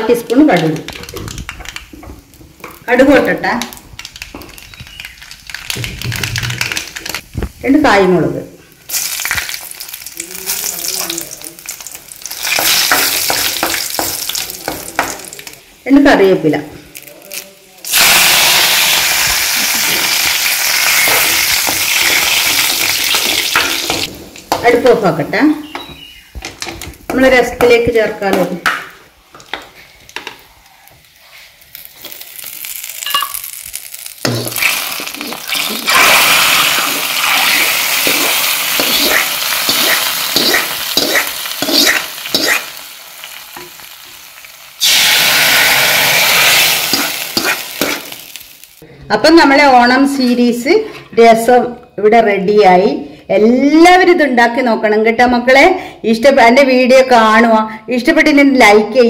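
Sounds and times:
leaves sizzling in hot oil: 2.2s - 8.0s, 8.6s - 15.8s, 16.9s - 24.6s, 29.8s - 48.8s.

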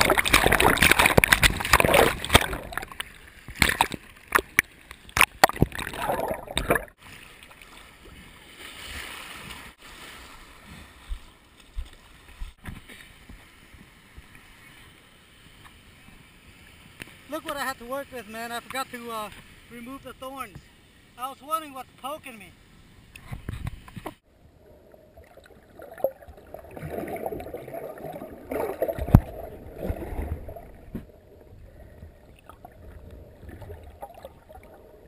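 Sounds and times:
surf splashing against camera: 0.0s - 7.5s.

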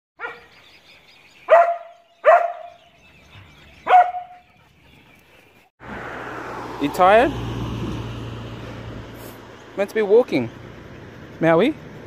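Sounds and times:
dog barking: 0.2s - 0.5s, 1.5s - 2.8s, 3.8s - 4.5s.

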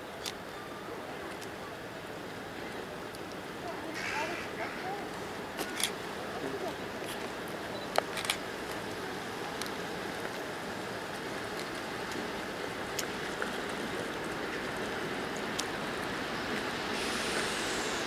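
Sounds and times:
diesel locomotive rumbling: 0.0s - 18.0s
high hiss: 3.9s - 4.7s, 16.1s - 18.0s.

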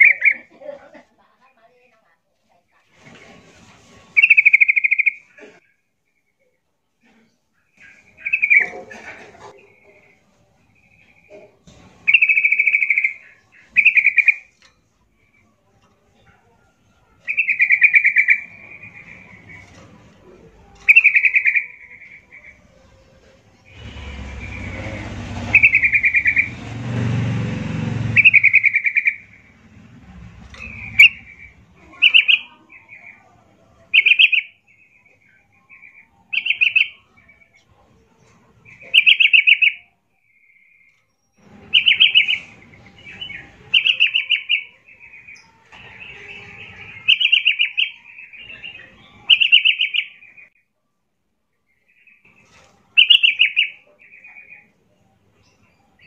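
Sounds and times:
bird singing high phrases: 0.0s - 0.5s, 4.2s - 6.5s, 7.8s - 8.6s, 12.1s - 14.6s, 17.2s - 19.8s, 20.8s - 22.7s, 23.6s - 26.6s, 28.1s - 37.6s, 38.2s - 50.7s, 51.7s - 56.0s
low rumbling noise: 22.5s - 32.2s.

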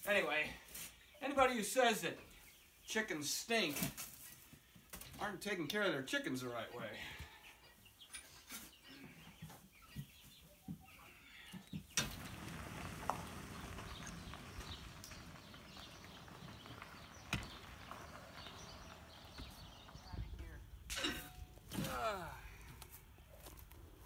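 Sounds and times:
steady outdoor hiss: 12.0s - 23.2s.

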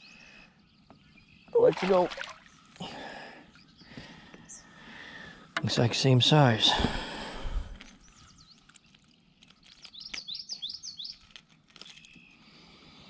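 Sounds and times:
small bird singing: 0.0s - 2.8s, 3.4s - 4.9s, 7.8s - 13.0s.

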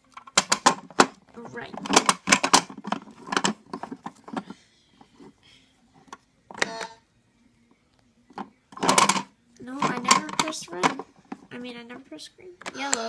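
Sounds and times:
toy car rattling on plastic track: 8.8s - 11.4s.

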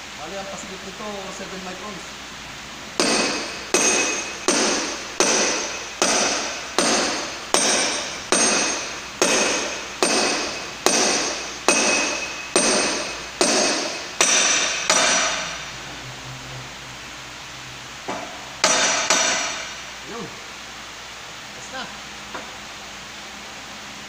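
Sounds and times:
steel bar striking metal: 3.0s - 15.6s, 18.6s - 19.8s.

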